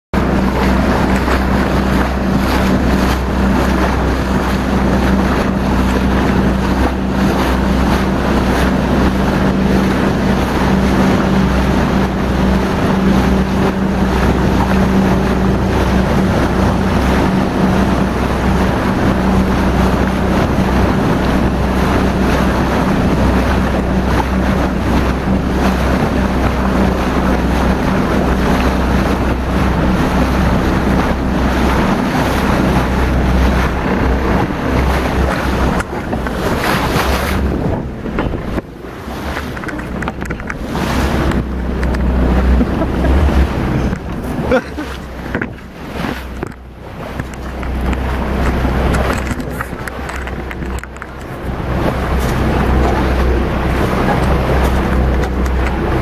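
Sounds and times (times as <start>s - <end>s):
motorboat engine droning: 0.1s - 56.0s
water rushing along hull: 0.1s - 56.0s
wind noise on microphone: 0.2s - 56.0s.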